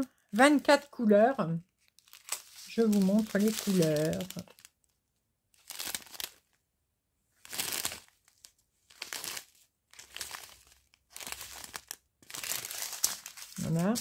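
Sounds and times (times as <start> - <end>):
plastic bags crinkling: 1.8 - 4.9, 5.6 - 6.6, 7.4 - 14.0.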